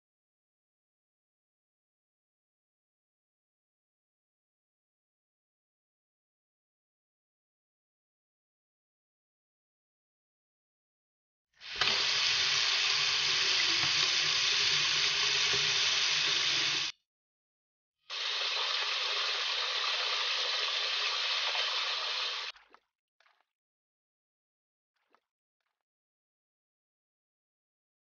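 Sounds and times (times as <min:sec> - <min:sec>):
faucet water running into steel pot: 0:11.6 - 0:16.9, 0:18.1 - 0:22.5.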